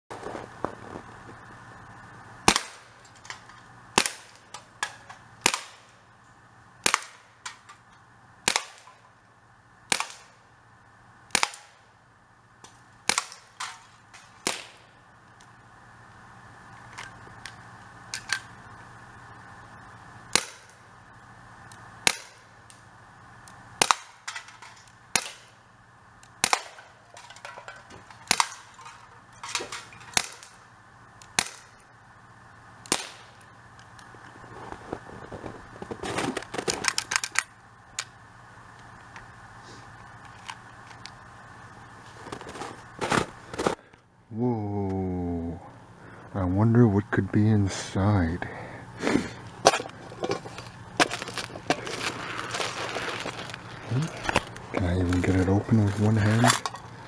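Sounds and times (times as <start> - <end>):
air pistol shots: 2.5 - 2.9, 4.0 - 5.9, 6.8 - 7.7, 8.4 - 8.9, 9.9 - 10.3, 11.3 - 11.8, 13.0 - 13.8, 14.4 - 14.8, 20.3 - 20.8, 22.0 - 22.4, 25.1 - 25.6, 26.4 - 27.0, 28.2 - 28.7, 29.6 - 30.6, 32.9 - 33.4.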